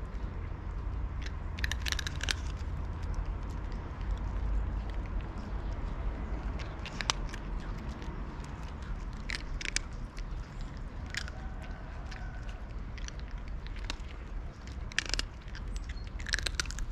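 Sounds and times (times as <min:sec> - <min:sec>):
cats crunching dry kibble: 0:00.0 - 0:16.9.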